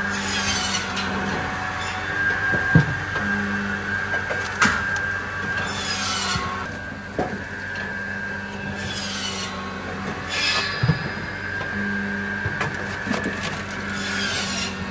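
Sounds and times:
machine hum: 0.9s - 14.9s
logs knocking and scraping: 2.2s - 9.1s, 12.4s - 14.9s.

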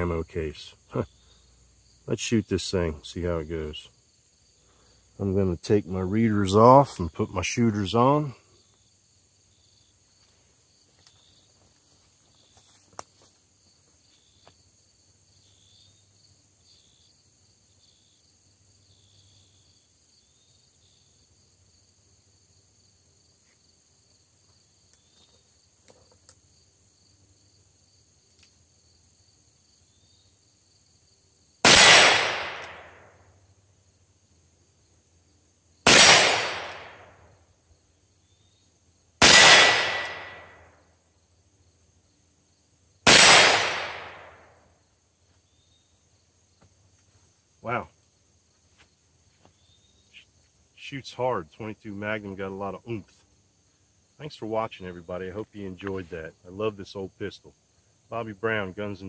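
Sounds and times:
crickets droning: 0.0s - 59.0s
revolver gunshots: 31.6s - 33.1s, 35.8s - 37.1s, 39.2s - 40.6s, 43.0s - 44.4s.

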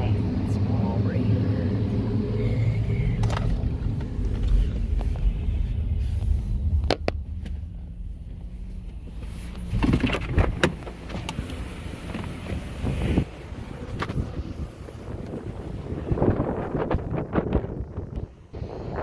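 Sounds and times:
car engine rumble from cabin: 0.0s - 19.0s
knocks and rustling: 6.8s - 11.4s.

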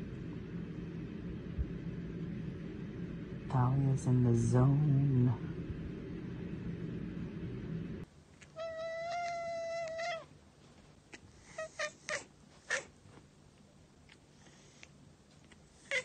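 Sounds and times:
cat meowing: 8.6s - 10.3s.

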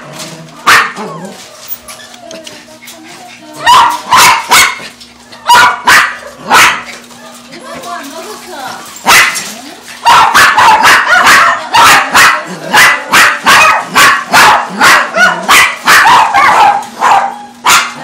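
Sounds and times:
dog barking: 0.6s - 1.1s, 3.6s - 4.9s, 5.5s - 6.9s, 9.0s - 18.0s.

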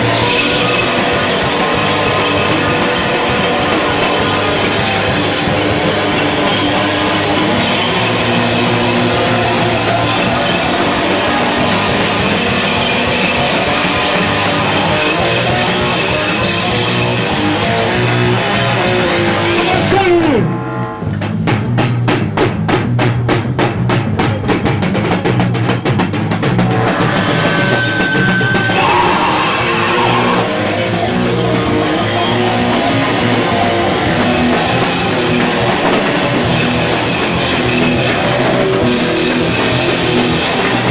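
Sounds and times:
heavy metal band playing: 0.0s - 40.9s
fast drum hits: 21.2s - 40.9s.

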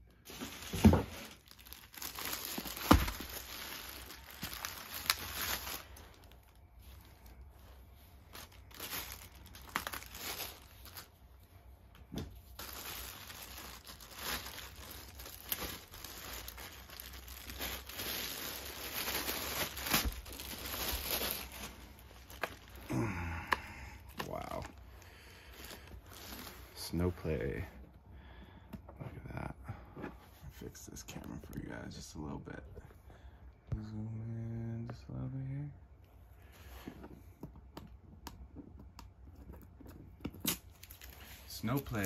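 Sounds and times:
plastic wrapping crinkling: 0.2s - 11.2s, 12.3s - 23.2s, 24.0s - 27.2s, 39.4s - 42.0s.

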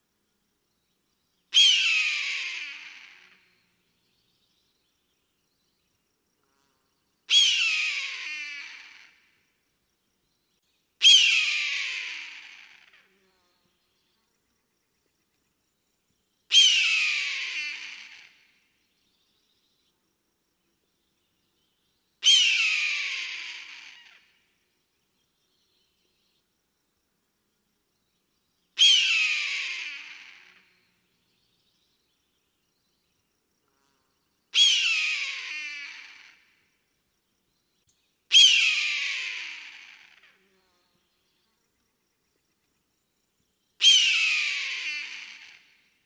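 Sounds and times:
eagle scream: 11.0s - 13.0s, 16.5s - 18.4s, 22.2s - 24.2s, 28.8s - 30.6s, 34.6s - 36.4s, 38.3s - 40.2s, 43.8s - 45.7s.

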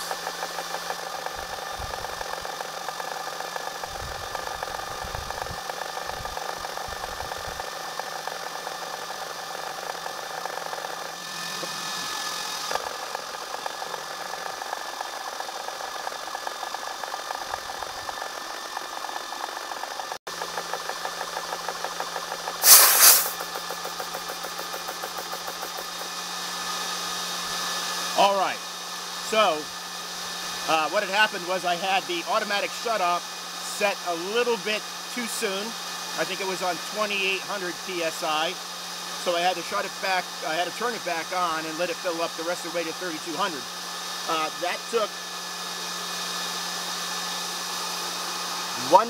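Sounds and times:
air compressor pump chatter: 0.0s - 49.0s
cooling fans: 0.0s - 49.0s
loud hiss of air: 22.6s - 23.8s.

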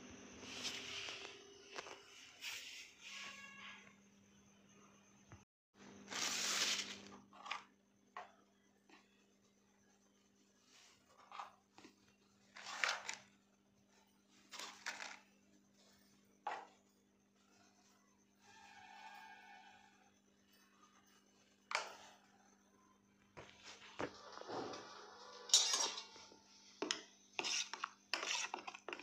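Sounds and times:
spices spooned scraping: 25.5s - 29.0s.

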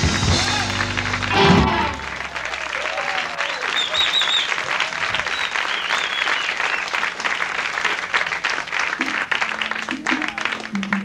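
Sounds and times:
audience whistling: 0.0s - 8.1s
audience applauding: 0.0s - 11.0s.

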